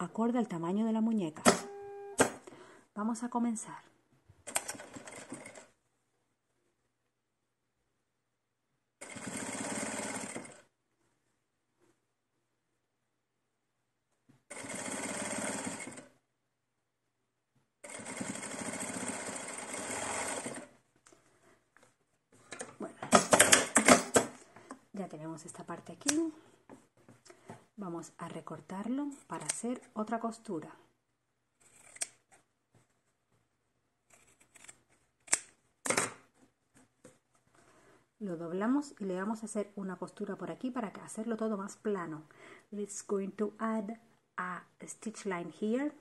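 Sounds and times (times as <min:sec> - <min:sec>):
sewing machine stitching: 0:01.4 - 0:02.4, 0:04.5 - 0:05.7, 0:09.0 - 0:10.7, 0:14.5 - 0:16.1, 0:17.8 - 0:20.7.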